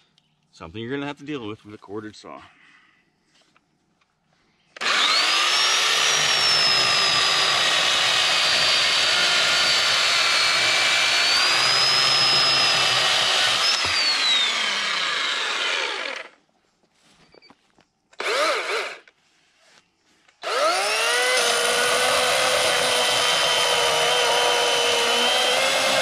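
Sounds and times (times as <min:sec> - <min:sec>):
electric chainsaw cutting log: 0:04.8 - 0:16.4, 0:18.2 - 0:19.1, 0:20.4 - 0:26.0.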